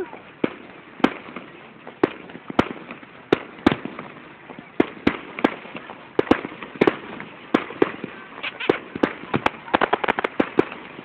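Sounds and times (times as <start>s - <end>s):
fireworks bangs: 0.0s - 11.0s.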